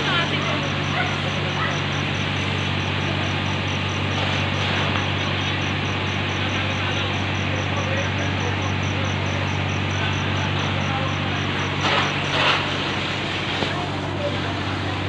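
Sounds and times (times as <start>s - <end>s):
building fire burning: 0.0s - 15.0s
hose spraying water: 0.0s - 15.0s
low engine hum: 0.0s - 15.0s.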